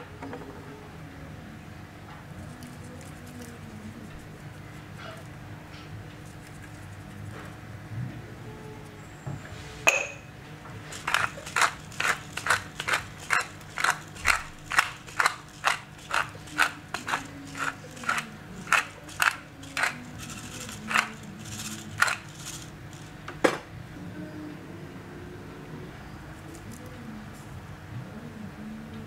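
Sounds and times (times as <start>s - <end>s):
pepper grinder grinding: 2.4s - 5.3s, 6.2s - 7.6s, 10.8s - 23.2s.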